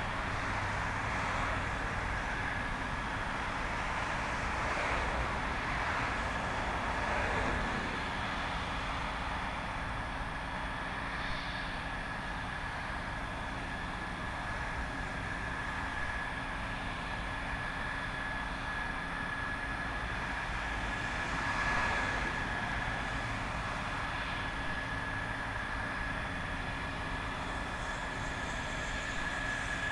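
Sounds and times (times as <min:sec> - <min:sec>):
jet engines whining: 0:10.4 - 0:29.9.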